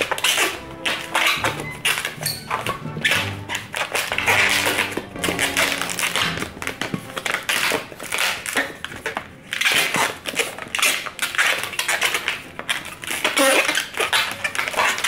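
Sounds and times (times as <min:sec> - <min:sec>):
balloons squeaking and rubbing: 0:00.0 - 0:15.0
wavering balloon squeal: 0:00.0 - 0:15.0.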